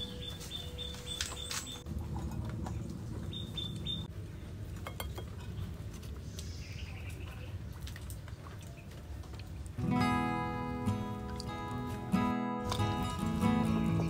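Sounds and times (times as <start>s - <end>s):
high bird chirps: 0.0s - 1.9s, 3.3s - 4.1s
low steady background rumble: 0.0s - 11.6s.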